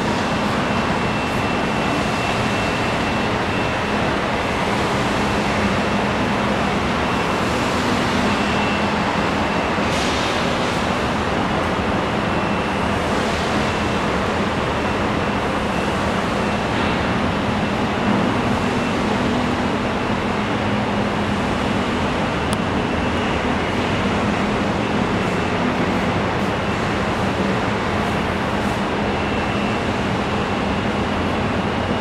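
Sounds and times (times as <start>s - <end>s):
faint high whine: 0.0s - 32.0s
industrial machinery drone: 0.0s - 32.0s.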